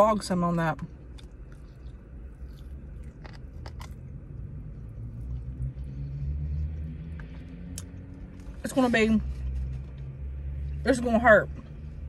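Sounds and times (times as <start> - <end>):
low steady hum: 0.0 - 12.0
person chewing: 0.9 - 8.6.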